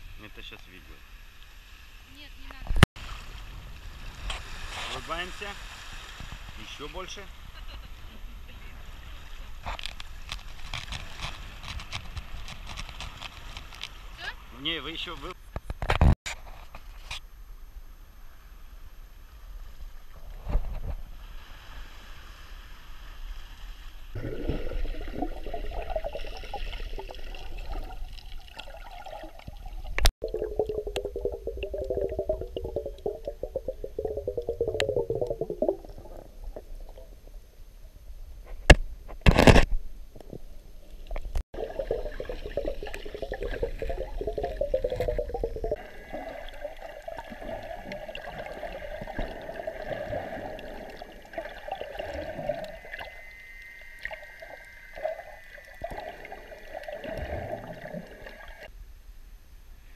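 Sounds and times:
muffled underwater bubbling: 24.2s - 37.5s, 41.6s - 58.7s.

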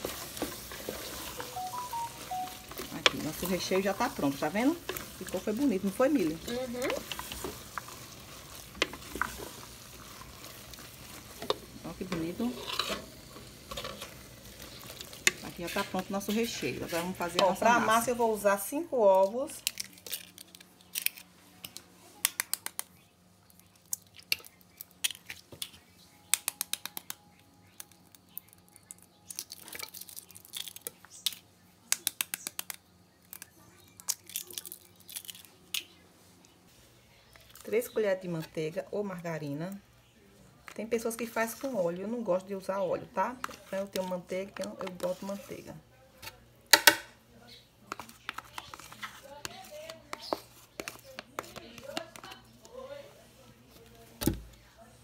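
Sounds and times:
wooden spoon stirring food in pot: 0.0s - 20.2s, 40.4s - 46.9s, 47.6s - 54.8s
light steady sizzle: 0.0s - 55.0s
eggshells breaking: 19.6s - 21.3s, 27.8s - 35.9s.

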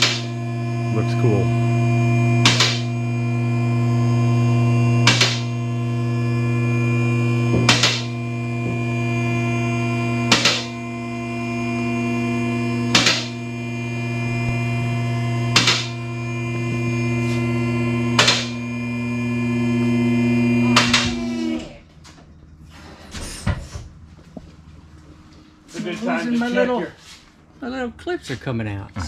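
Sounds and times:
electric pump motor humming: 0.0s - 21.8s.

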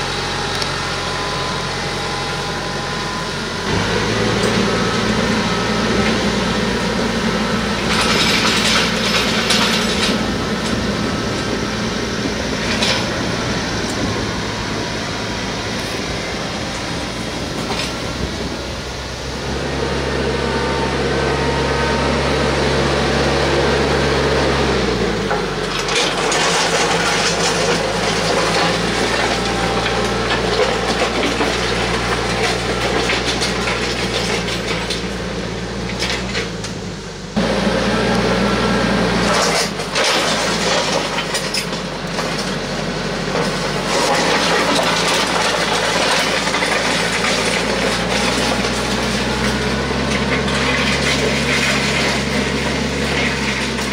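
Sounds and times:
tractor diesel engine running: 0.0s - 53.9s
soil and stones scraping: 3.7s - 14.2s, 24.9s - 36.6s, 39.1s - 53.9s.

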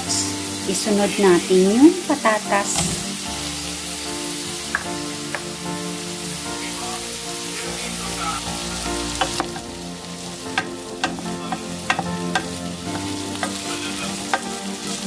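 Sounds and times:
carrots sizzling in a pan: 0.0s - 15.0s
utensil clicking against pan: 10.5s - 14.7s.

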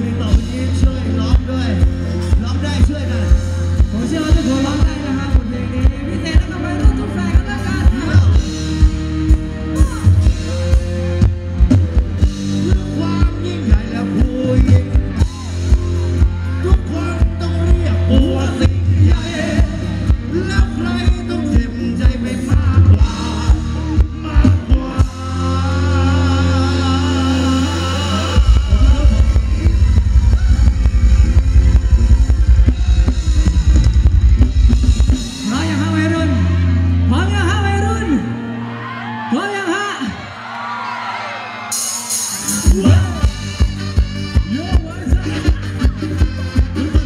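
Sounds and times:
bass drum beat: 0.0s - 36.6s, 42.3s - 47.0s
band music over loudspeakers: 0.0s - 47.0s
person singing: 12.6s - 30.9s.

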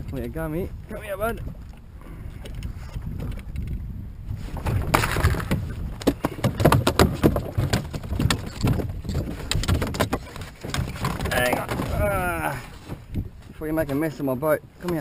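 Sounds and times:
wind rumble on microphone: 0.0s - 15.0s
fish slapping against boat hull: 4.6s - 12.2s.

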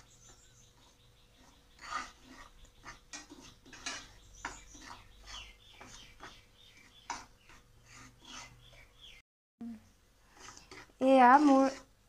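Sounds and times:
metal spatula scraping frying pan: 1.4s - 8.9s.

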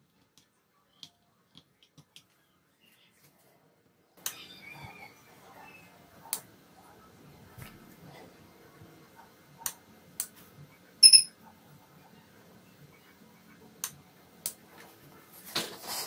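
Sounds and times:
short high double beep: 11.0s - 11.3s.

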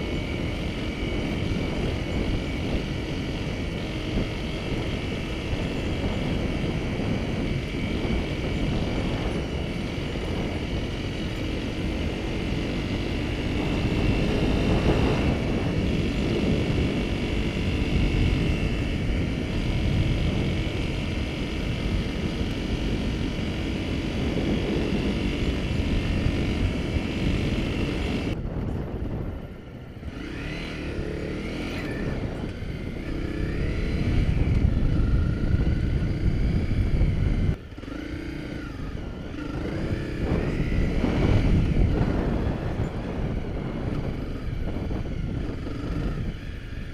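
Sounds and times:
motorcycle engine running: 0.0s - 46.9s.

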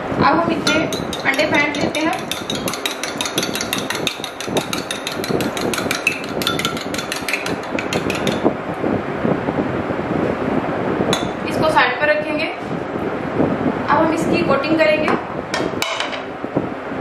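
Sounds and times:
fork clicking against bowl: 0.7s - 8.5s.

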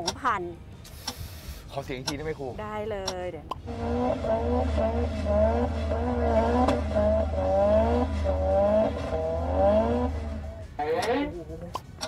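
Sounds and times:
car engine revving: 3.6s - 12.0s.

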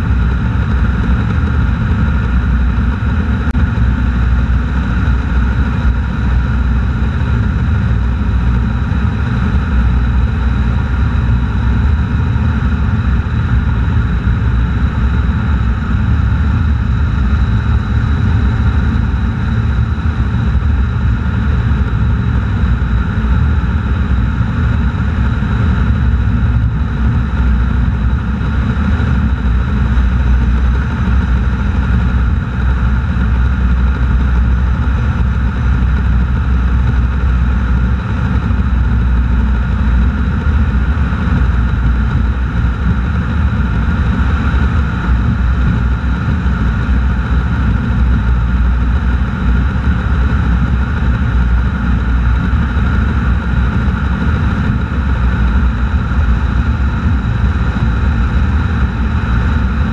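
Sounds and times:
car engine drone: 0.0s - 59.9s
wind noise: 0.0s - 59.9s.

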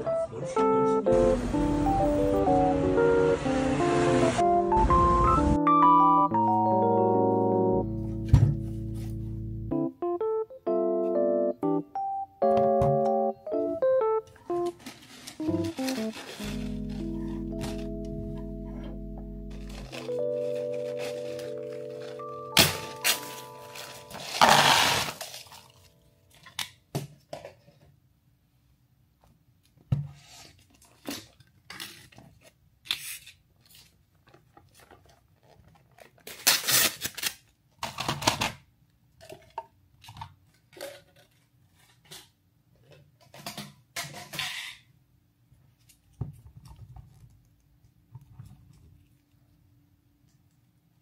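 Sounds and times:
packaging tearing and rustling: 14.7s - 17.8s, 19.5s - 25.8s, 30.8s - 38.4s.

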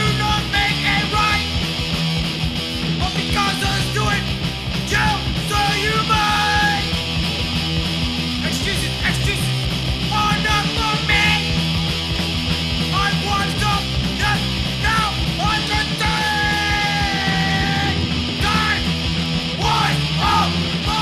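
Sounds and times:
shouted vocals: 0.0s - 1.5s, 3.0s - 7.0s, 8.4s - 11.6s, 12.9s - 21.0s
hardcore punk song: 0.0s - 21.0s.

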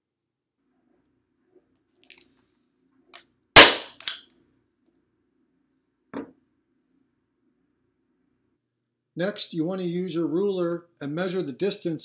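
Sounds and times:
staple gun snap: 3.6s - 4.2s.

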